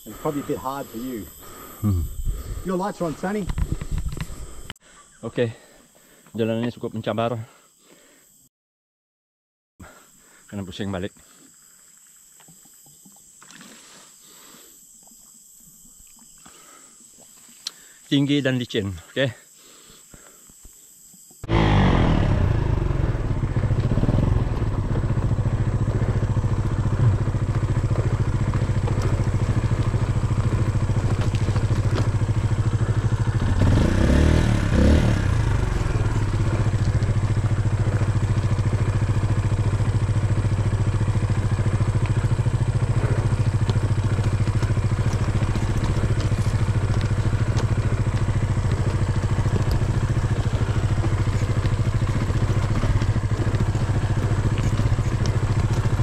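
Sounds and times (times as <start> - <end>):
dirt bike engine: 0.0 - 4.7, 21.4 - 56.0.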